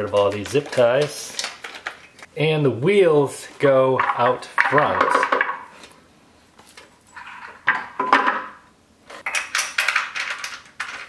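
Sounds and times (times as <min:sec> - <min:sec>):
clicks and rattles: 0:09.2 - 0:11.0.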